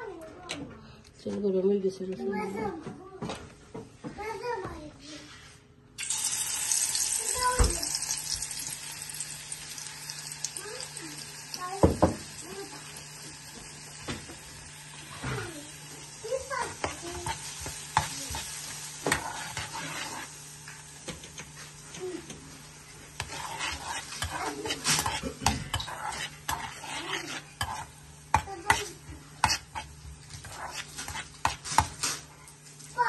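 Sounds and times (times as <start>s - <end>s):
food sizzling in a pan: 6.0s - 33.0s
spoon scraping a pan: 16.4s - 32.3s.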